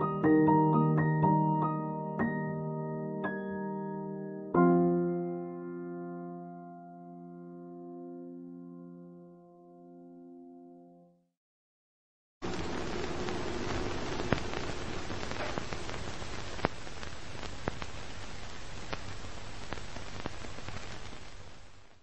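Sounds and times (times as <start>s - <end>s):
crackles and pops: 12.4s - 22.0s
steady film hiss: 12.4s - 22.0s.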